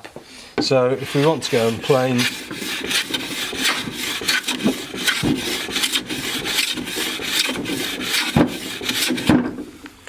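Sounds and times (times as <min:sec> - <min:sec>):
plane blade scraping wood: 0:00.6 - 0:09.4
knocks: 0:04.6 - 0:05.5, 0:07.4 - 0:08.6.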